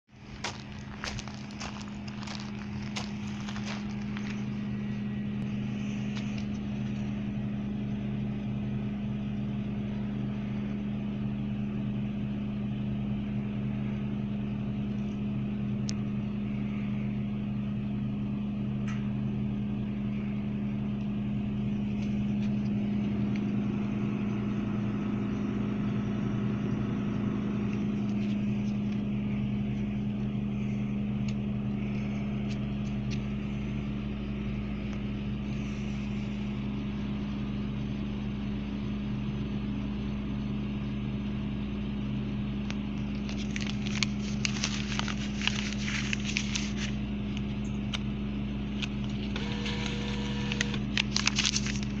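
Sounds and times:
vending machine humming: 0.0s - 52.0s
crisp crackling: 0.1s - 4.9s, 43.0s - 47.0s, 50.6s - 52.0s.

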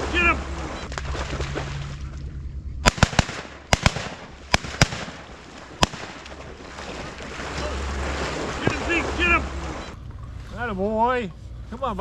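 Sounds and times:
shotgun shots: 2.8s - 6.4s.

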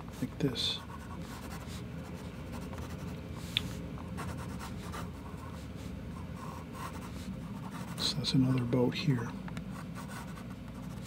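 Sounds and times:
pencil scratching on paper: 0.2s - 3.1s, 4.2s - 8.2s, 9.8s - 11.0s.

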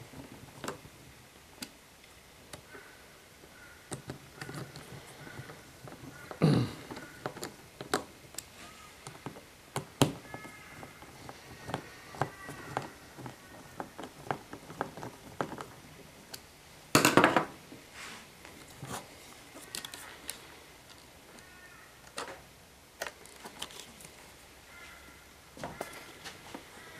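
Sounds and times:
clicks and knocks of plastic parts: 3.9s - 16.4s, 23.0s - 24.2s.

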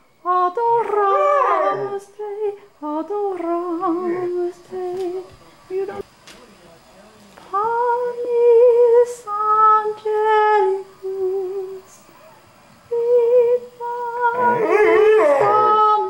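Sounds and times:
woman singing wordless melody: 0.0s - 6.0s, 7.5s - 12.1s, 12.8s - 16.0s
dog howling: 0.6s - 2.1s, 3.2s - 4.5s, 14.3s - 16.0s.

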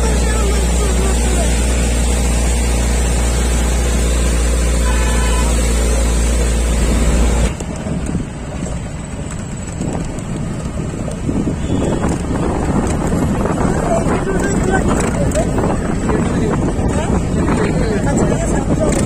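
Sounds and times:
road noise: 0.0s - 19.0s
vehicle engine: 0.0s - 19.0s
wind on microphone: 9.7s - 19.0s.

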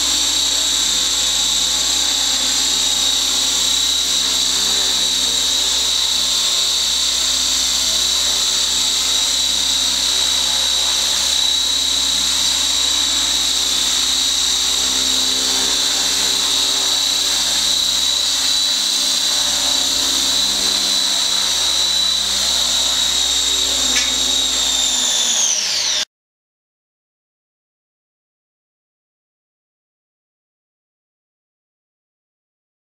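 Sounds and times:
model helicopter rotor whine: 0.0s - 26.1s.

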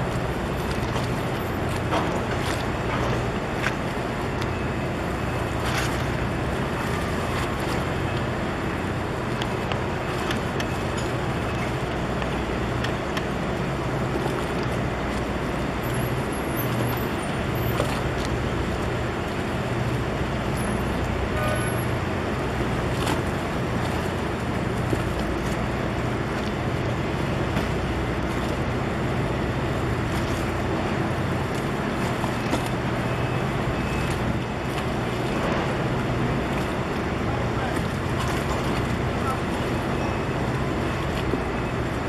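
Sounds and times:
boat engine droning: 0.0s - 42.0s
water wash: 0.0s - 42.0s.

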